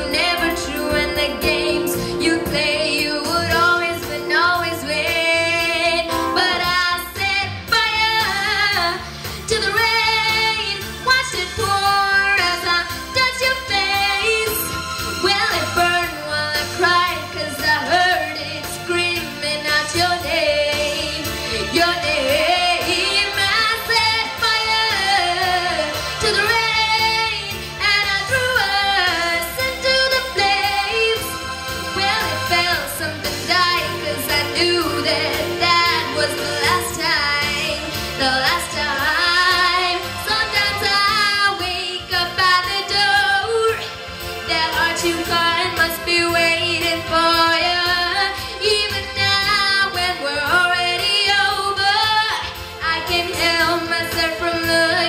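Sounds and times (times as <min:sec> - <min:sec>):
boy singing pop ballad: 0:00.0 - 0:31.4, 0:32.0 - 0:55.0
keyboard accompaniment with beat: 0:00.0 - 0:55.0.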